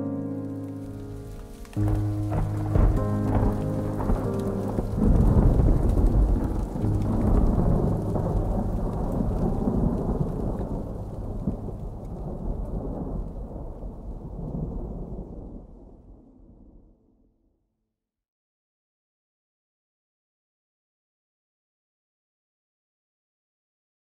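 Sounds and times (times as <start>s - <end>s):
rain-like hiss: 0.0s - 15.3s
deep thunder-like rumble: 1.7s - 17.0s.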